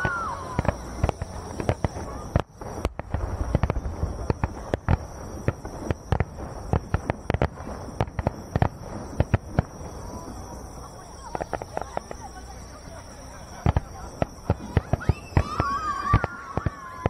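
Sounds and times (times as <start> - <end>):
firework shells bursting: 0.0 - 17.0.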